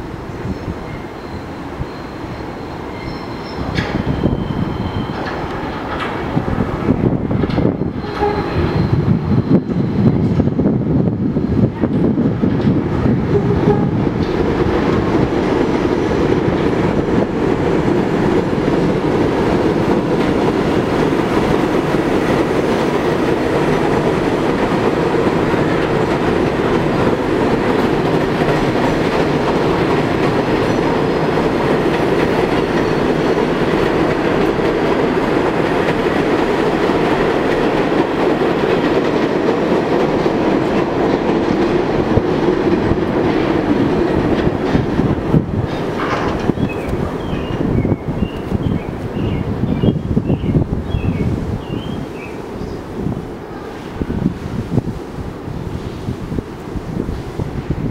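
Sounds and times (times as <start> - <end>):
train wheels rumbling on steel track: 0.0 - 57.9.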